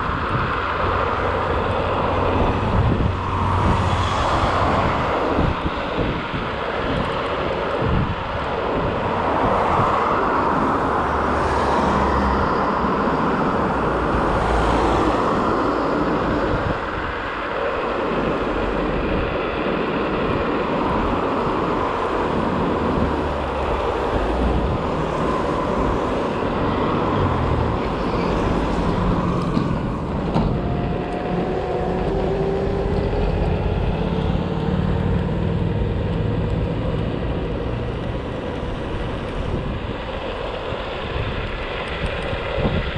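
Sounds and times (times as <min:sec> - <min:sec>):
traffic noise: 0:00.0 - 0:42.9
wind on microphone: 0:00.0 - 0:42.9
thin rising engine tone: 0:25.0 - 0:37.8.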